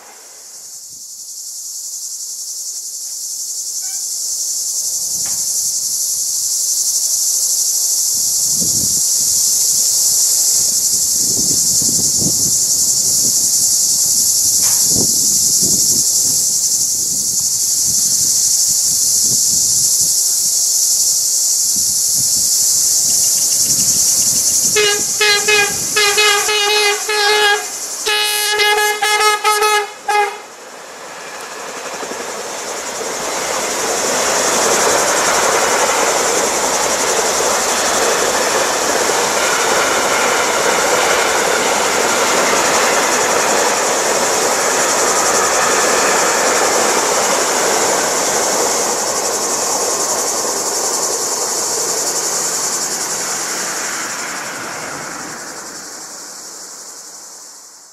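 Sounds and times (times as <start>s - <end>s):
freight train rolling past: 0.0s - 0.9s, 2.3s - 57.8s
locomotive horn blasts: 24.7s - 30.5s.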